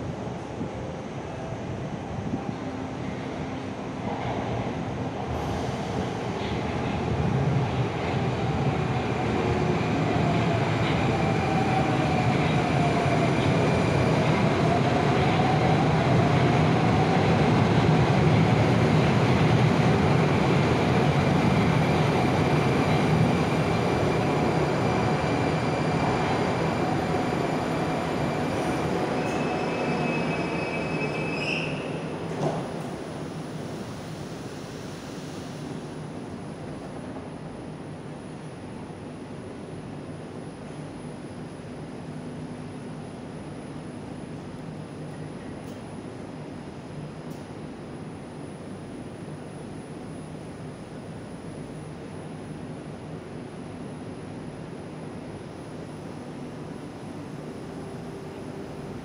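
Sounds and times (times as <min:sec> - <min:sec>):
train wheels rumbling on rail: 0:03.2 - 0:39.9
thin high brake squeal: 0:29.2 - 0:32.0.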